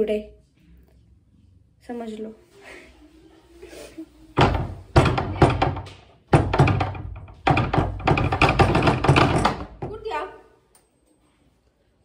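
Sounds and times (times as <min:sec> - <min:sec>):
rapid thumping and clattering: 0:04.4 - 0:10.1.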